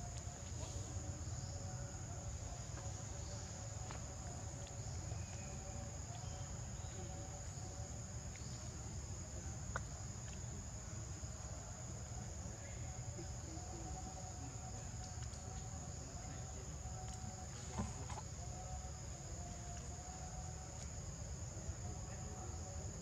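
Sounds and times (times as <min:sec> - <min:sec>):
high-pitched insect chorus: 0:00.0 - 0:23.0
faint ticks: 0:14.9 - 0:15.8.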